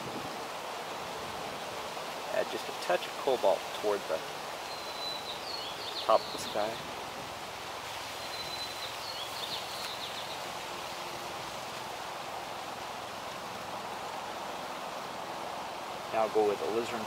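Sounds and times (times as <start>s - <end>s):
open-air ambience hiss: 0.0s - 17.0s
high bird chirps: 4.6s - 6.8s, 8.2s - 10.4s.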